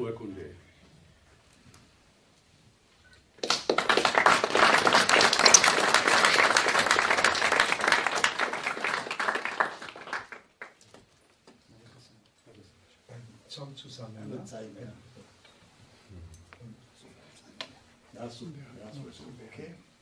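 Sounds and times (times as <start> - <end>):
small audience applauding: 3.4 - 10.8.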